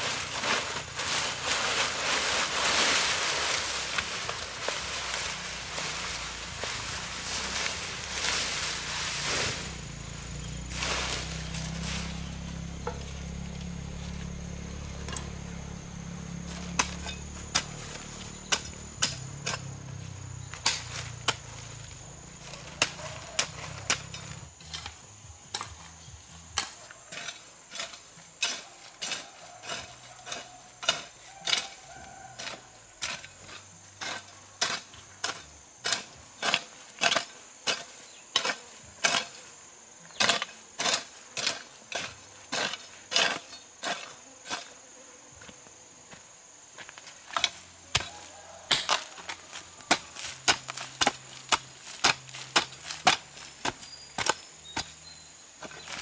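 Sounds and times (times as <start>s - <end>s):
hoe striking dry ground: 0.0s - 44.8s, 46.8s - 56.0s
insects chirring: 0.0s - 56.0s.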